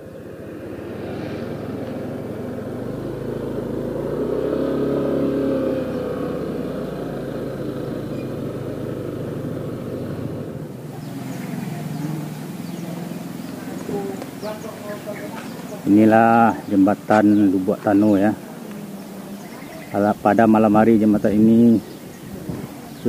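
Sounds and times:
scooter engine running: 0.0s - 23.0s
wind and tyre noise: 0.0s - 23.0s.

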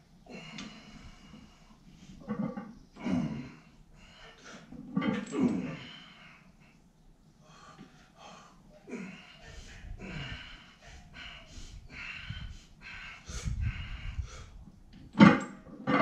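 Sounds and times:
man panting heavily: 7.4s - 14.7s.

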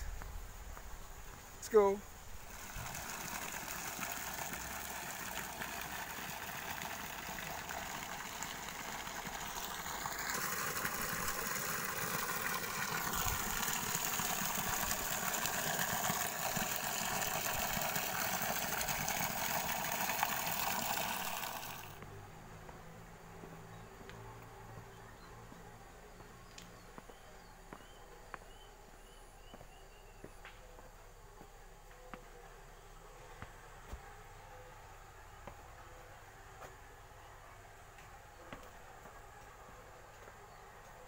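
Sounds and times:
water pouring into flooded field: 2.4s - 22.0s.

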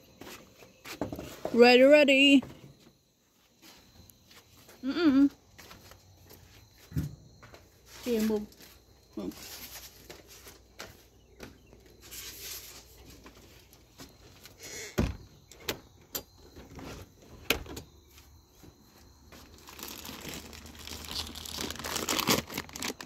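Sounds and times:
plastic bag crinkling: 19.4s - 23.0s.

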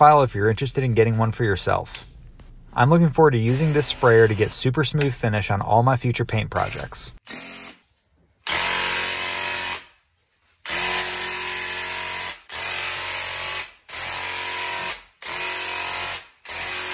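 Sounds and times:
electric paint sprayer pump buzzing: 3.5s - 4.6s, 8.5s - 9.9s, 10.7s - 16.9s.

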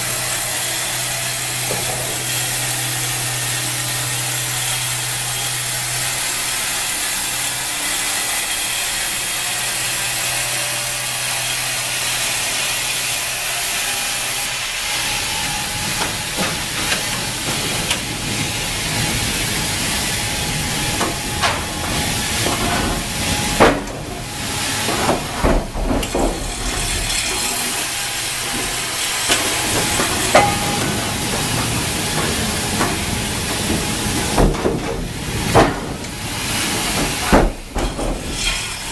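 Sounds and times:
band sawmill running: 0.0s - 38.9s
knocks and clanks: 1.6s - 2.6s, 15.4s - 38.9s.

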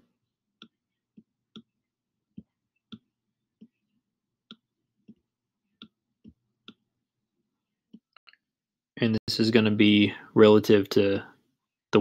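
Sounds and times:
stylus tapping tablet screen: 0.4s - 7.0s, 7.7s - 8.3s.

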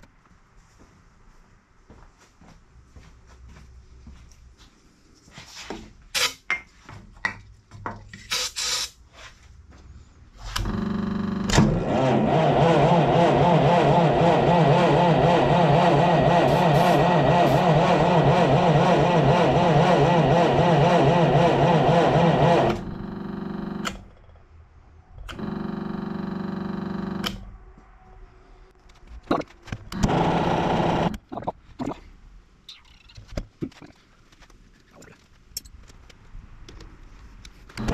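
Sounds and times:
engine cranking by starter: 10.5s - 24.1s, 29.9s - 31.2s.

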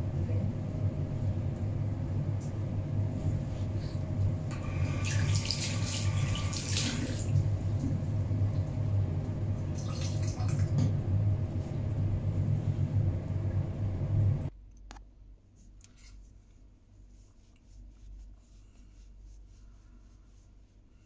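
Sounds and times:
steady low hum: 0.0s - 21.0s
towel wiping basin: 3.1s - 8.6s, 16.0s - 21.0s
tap water splashing over hands: 5.1s - 7.3s.

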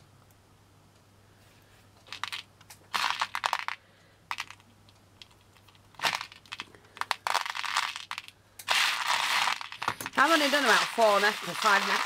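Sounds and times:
beads clicking and rattling: 2.0s - 12.0s.

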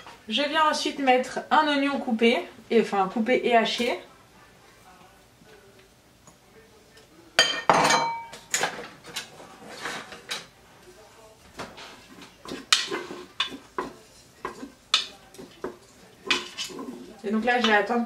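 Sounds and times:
spatula knocking in cooking bowl: 12.4s - 16.7s.

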